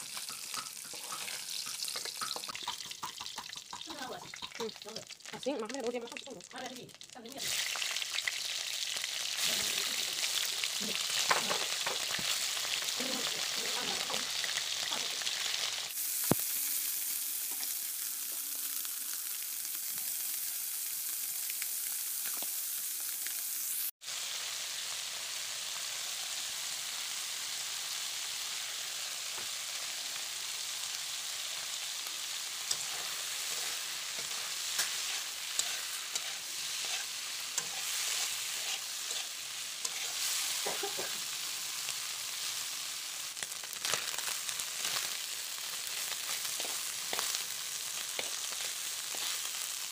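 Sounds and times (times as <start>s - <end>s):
fish sizzling in hot oil: 0.0s - 49.9s
spatula scraping and clicking: 32.7s - 38.0s.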